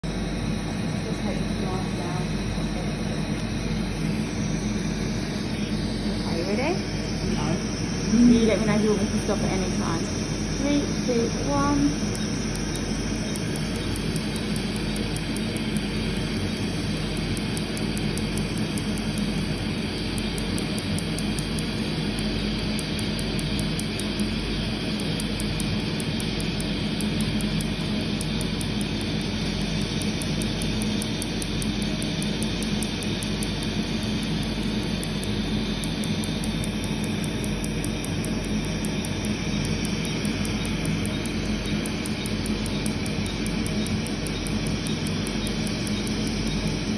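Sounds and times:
laser snapping clicks: 0:11.8 - 0:46.9.

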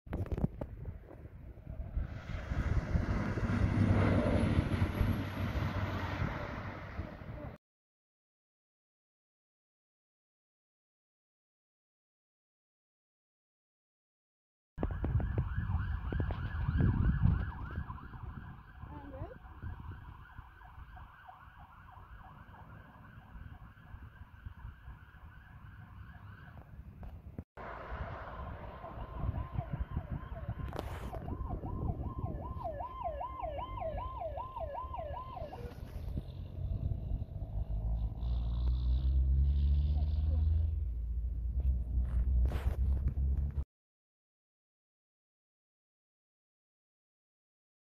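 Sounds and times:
heavy trucks rumbling: 0:01.8 - 0:07.5
fire truck sirens yelping: 0:14.8 - 0:26.7, 0:28.3 - 0:37.7.

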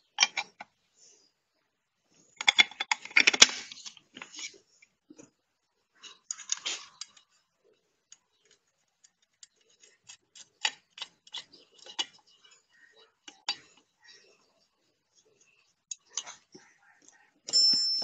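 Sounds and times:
small hard parts clicking: 0:00.0 - 0:00.8, 0:02.3 - 0:05.3, 0:06.0 - 0:07.4, 0:08.1 - 0:14.2.

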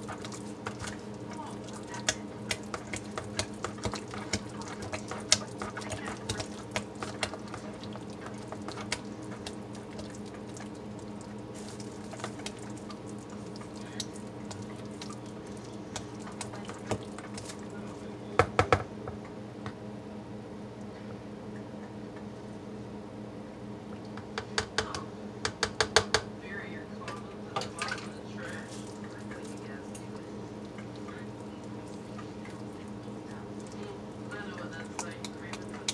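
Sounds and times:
spatula squishing and scraping soap: 0:00.0 - 0:17.8, 0:27.6 - 0:35.9
steady low hum: 0:00.0 - 0:35.9.

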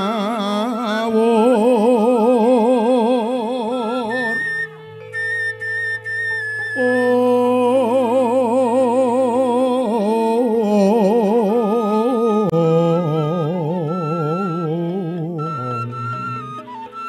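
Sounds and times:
man singing with vibrato: 0:00.0 - 0:04.8, 0:06.8 - 0:17.0
held instrumental note: 0:13.4 - 0:17.0.

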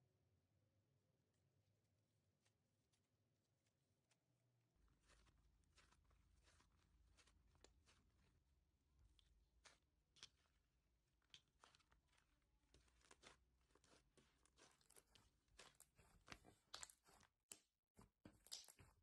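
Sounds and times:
slime crackling and snapping: 0:11.2 - 0:17.7, 0:18.3 - 0:19.0.

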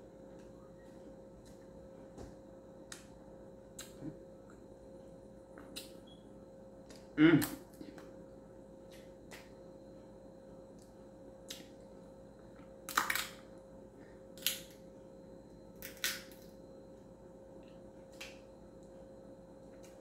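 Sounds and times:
crab shell snapping: 0:12.9 - 0:13.4, 0:15.8 - 0:16.4.

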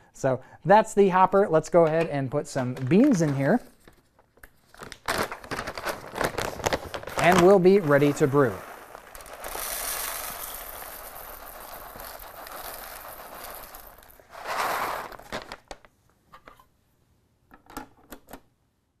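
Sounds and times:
coffee beans pouring: 0:06.3 - 0:15.6
beans clicking: 0:07.2 - 0:15.6.

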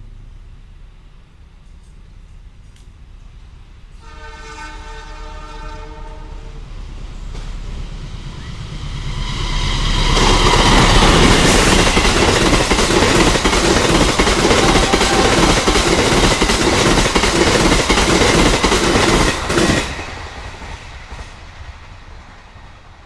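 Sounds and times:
train wheels on rails: 0:00.0 - 0:23.0
train horn chord: 0:04.0 - 0:06.7, 0:14.4 - 0:16.2.

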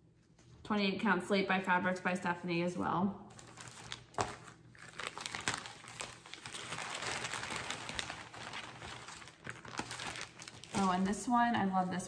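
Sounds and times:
fabric rustling and crinkling: 0:03.3 - 0:12.0.

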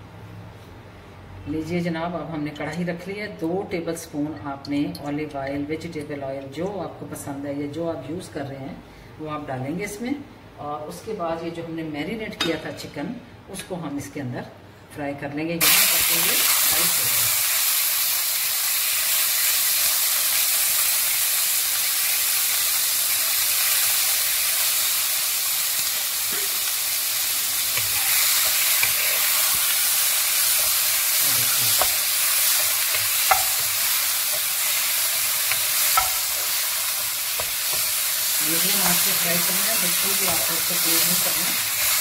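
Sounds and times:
chicken sizzling in oil: 0:15.6 - 0:42.0
spoon knocking against pan: 0:32.9 - 0:33.7, 0:35.5 - 0:36.2.

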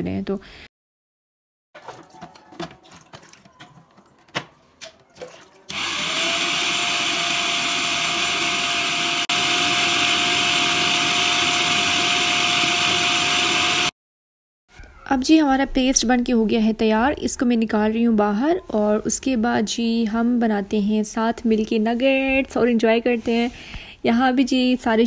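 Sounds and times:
food processor motor running: 0:05.7 - 0:13.9.

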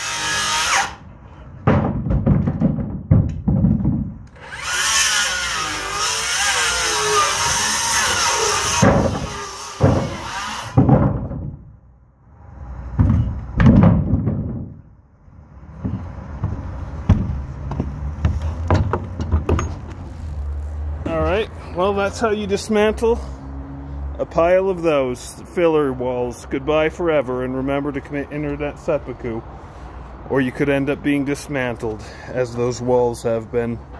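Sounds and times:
wood knocking: 0:01.6 - 0:04.2, 0:13.0 - 0:14.8, 0:15.8 - 0:19.8
cordless power tool running: 0:04.4 - 0:09.8.

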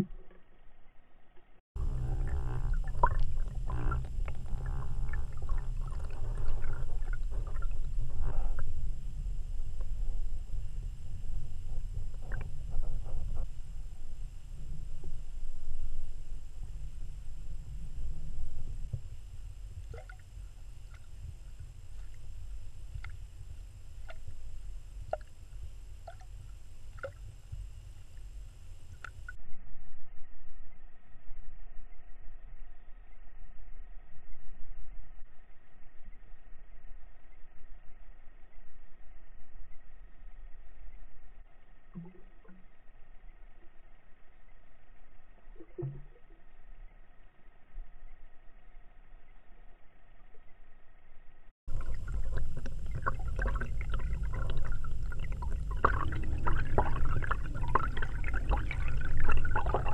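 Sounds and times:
low underwater rumble: 0:00.0 - 0:59.9
underwater clicks: 0:01.9 - 0:08.9, 0:11.4 - 0:14.8, 0:19.8 - 0:23.3, 0:51.7 - 0:59.9.

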